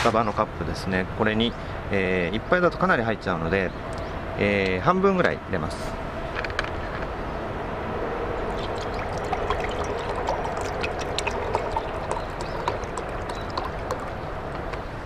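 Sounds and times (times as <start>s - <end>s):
liquid pouring into a mug: 8.5s - 14.5s.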